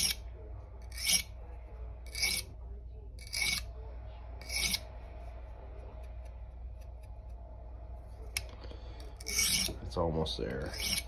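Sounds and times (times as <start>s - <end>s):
knife rasping on sharpening stone: 0.0s - 0.2s, 0.8s - 1.4s, 2.1s - 2.5s, 3.2s - 3.7s, 4.4s - 4.9s, 9.1s - 9.8s, 10.6s - 11.0s.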